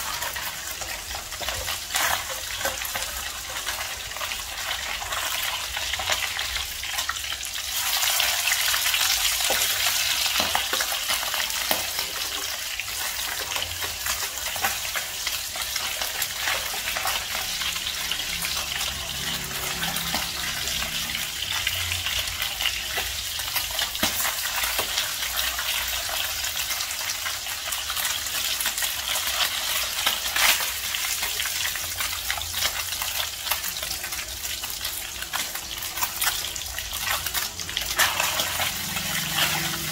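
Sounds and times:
metal spatula scraping a pan: 0:00.0 - 0:06.1, 0:35.3 - 0:39.9
fish frying in hot oil: 0:00.0 - 0:39.9.

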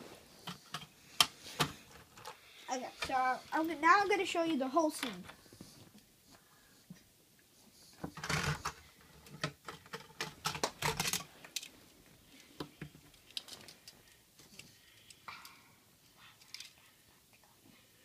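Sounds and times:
plastic bricks clicking and knocking: 0:08.2 - 0:11.7.

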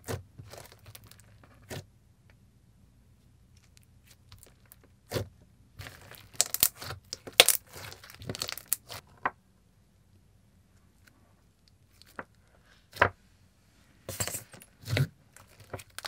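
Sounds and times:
sticky slime crackles and pops: 0:05.8 - 0:09.0.

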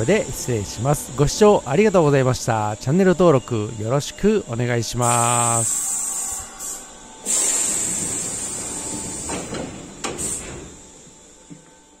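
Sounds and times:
train doors hissing open: 0:00.0 - 0:12.0
compressed air hiss: 0:05.0 - 0:11.8.

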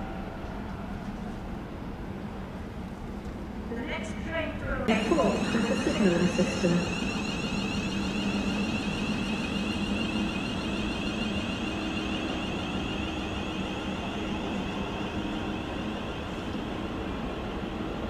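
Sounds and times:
electric train humming: 0:04.9 - 0:18.0
high whine: 0:04.9 - 0:18.0.

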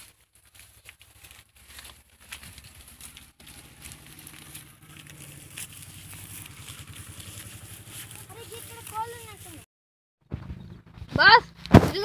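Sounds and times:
footsteps through dry grass: 0:00.0 - 0:09.7
low steady rumble: 0:00.4 - 0:09.6.

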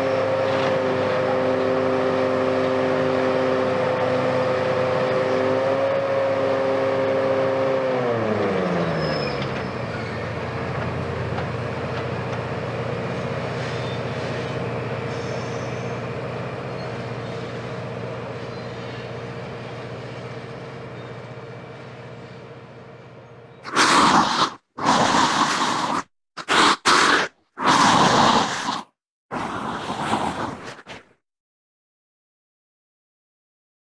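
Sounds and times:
excavator engine whining: 0:00.0 - 0:25.9
loud choppy bursts: 0:23.6 - 0:31.2.

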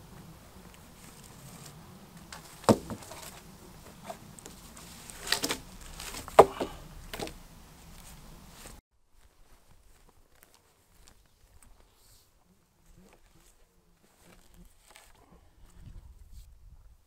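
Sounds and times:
wooden poles knocking together: 0:02.2 - 0:07.4.

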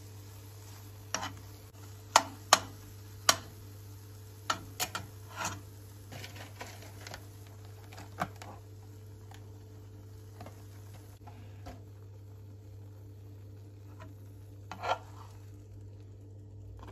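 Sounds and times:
cracker packet rustling: 0:06.1 - 0:09.5.

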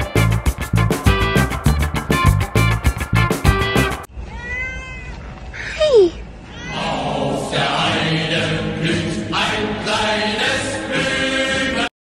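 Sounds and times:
chant-like singing: 0:06.7 - 0:11.9.

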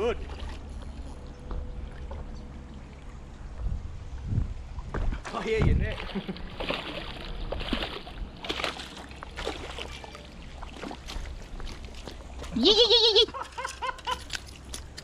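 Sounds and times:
fish thrashing and splashing: 0:05.8 - 0:12.6, 0:13.4 - 0:15.0.

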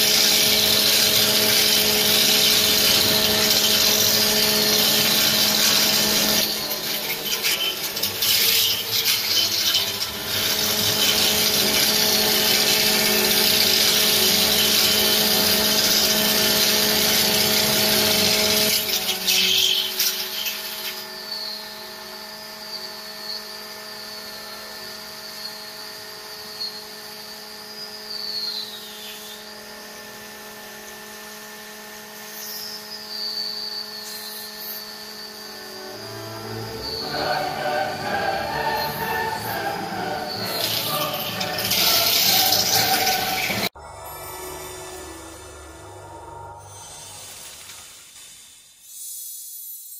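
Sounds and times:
turning tool hissing cut: 0:00.0 - 0:43.8
wood lathe motor hum: 0:00.0 - 0:43.8
thin high wavering whine: 0:00.0 - 0:49.1.

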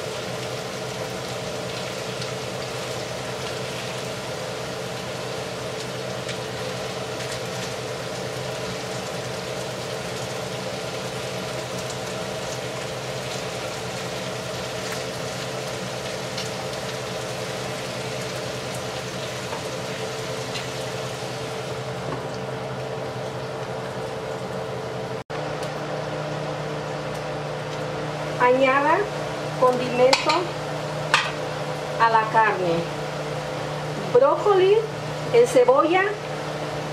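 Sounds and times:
food sizzling in a pan: 0:00.0 - 0:24.6, 0:26.2 - 0:36.8
steady low hum: 0:17.7 - 0:36.9.

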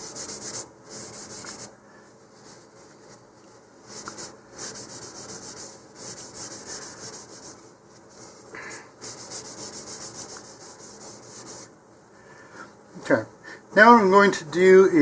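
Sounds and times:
cloth rubbing on plastic: 0:00.0 - 0:11.7.

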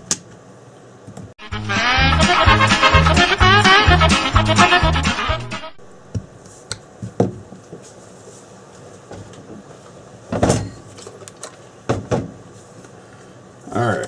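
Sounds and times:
music: 0:01.4 - 0:05.8.

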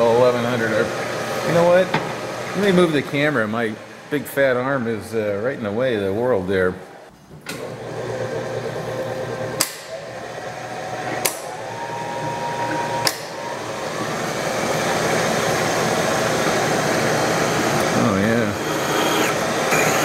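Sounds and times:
drill press running: 0:00.0 - 0:04.3, 0:07.5 - 0:20.0
drill cutting into metal: 0:09.6 - 0:20.0.

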